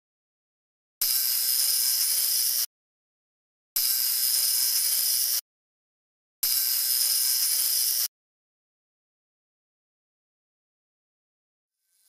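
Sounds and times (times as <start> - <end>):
clockwork mechanism whirring: 1.0 - 2.7, 3.8 - 5.4, 6.4 - 8.1.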